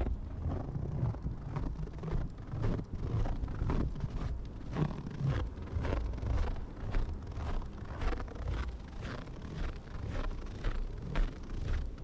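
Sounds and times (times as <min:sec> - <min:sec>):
wind buffeting microphone: 0:00.0 - 0:12.0
footsteps crunching in snow: 0:02.5 - 0:12.0.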